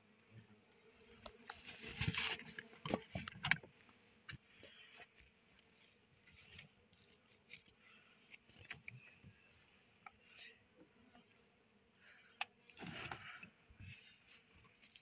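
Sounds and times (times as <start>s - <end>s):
blade scraping honeycomb: 1.0s - 3.7s.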